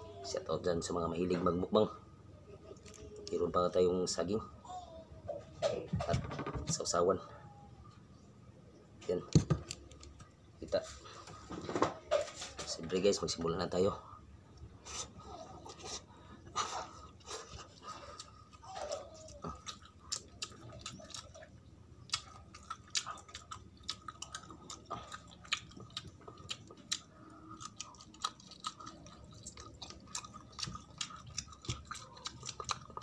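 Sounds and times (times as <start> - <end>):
person chewing: 14.5 - 33.0.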